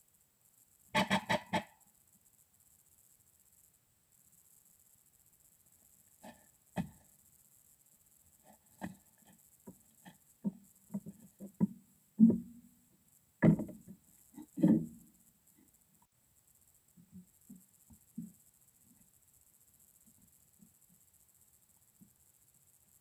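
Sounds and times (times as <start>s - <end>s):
wooden knocks and bumps: 9.6s - 12.7s, 13.4s - 15.0s.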